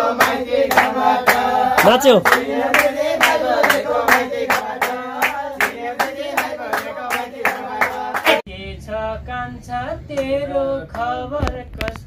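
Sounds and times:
hands clapping in rhythm: 0.0 - 8.4, 10.2 - 12.0
men singing folk song: 0.0 - 9.2.

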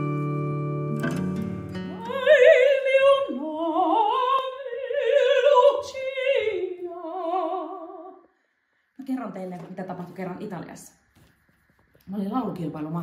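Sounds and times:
synthesised chord: 0.0 - 2.2
woman singing opera: 1.9 - 8.2.

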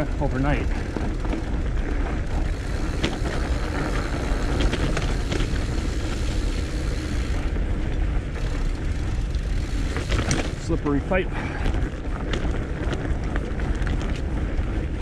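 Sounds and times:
bike tires rolling on dirt: 0.0 - 15.0
leaves and twigs crackling: 0.0 - 15.0.

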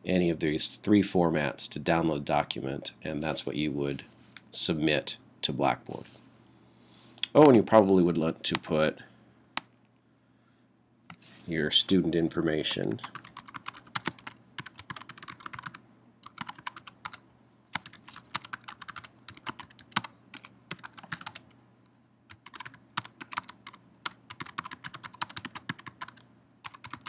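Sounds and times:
typing on computer keyboard: 13.1 - 17.2, 17.8 - 21.5, 22.3 - 27.0.

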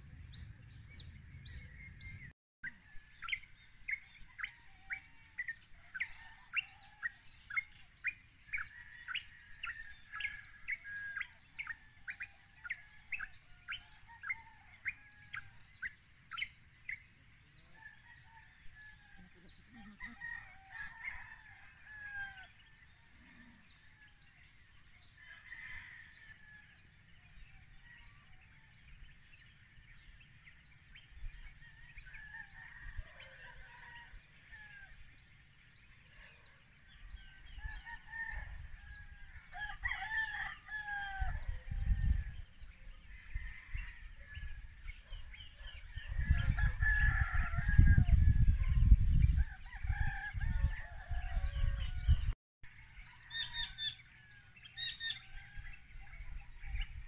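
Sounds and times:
rooster crowing: 17.8 - 22.6, 25.2 - 26.8, 37.4 - 42.2, 45.8 - 52.3, 53.1 - 56.2.

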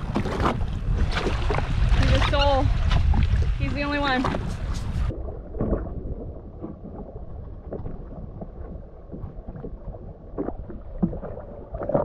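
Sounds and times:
water slaps: 0.0 - 5.9
water lapping against hull: 0.0 - 12.0.

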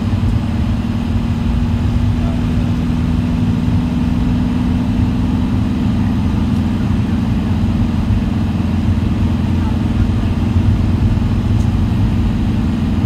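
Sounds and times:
road noise rumble: 0.0 - 13.0
vehicle engine hum: 0.0 - 13.0.

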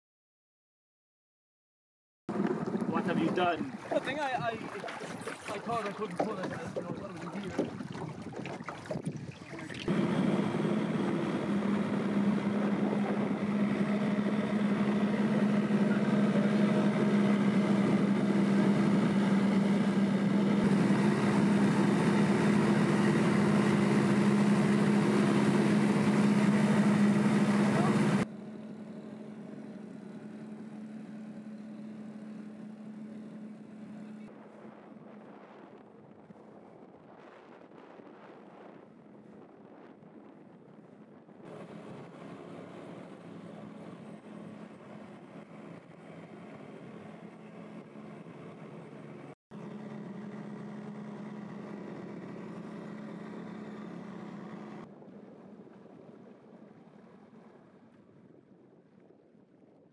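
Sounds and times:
rush of wind and water: 2.3 - 28.2, 34.3 - 46.6, 52.4 - 59.9
outboard motor running: 2.3 - 37.8, 38.4 - 59.1
boat wake wash: 2.3 - 59.9.

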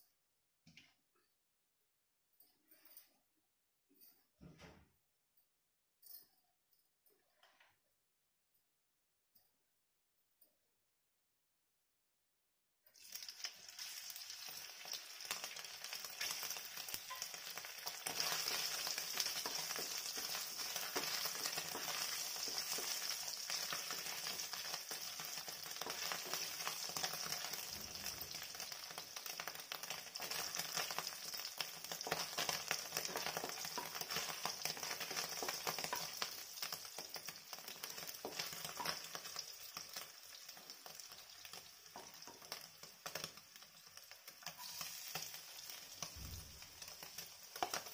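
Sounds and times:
cheese sizzling in hot oil: 12.9 - 47.9.

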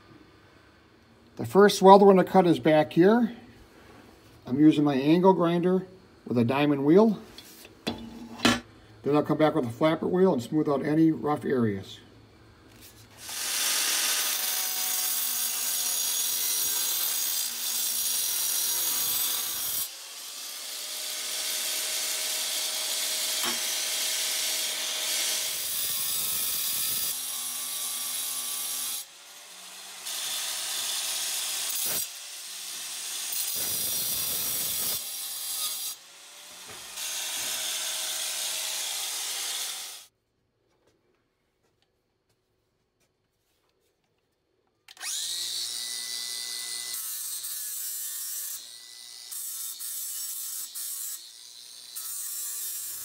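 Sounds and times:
angle grinder cutting steel: 13.2 - 40.1, 44.9 - 53.0.

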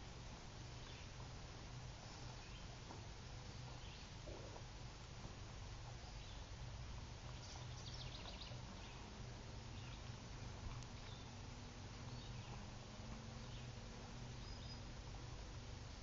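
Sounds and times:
low hiss: 0.0 - 16.0
bird chirps: 0.8 - 1.2, 3.6 - 4.5, 7.3 - 9.1, 9.7 - 10.1, 11.0 - 11.4, 12.1 - 12.7, 13.4 - 14.9.

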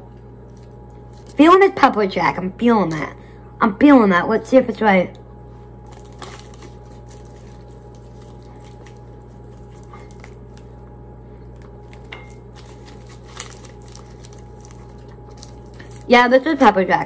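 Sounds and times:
steady low hum: 0.0 - 17.0
plastic wrapper rustling: 0.4 - 1.4, 5.8 - 10.8, 11.5 - 16.6.

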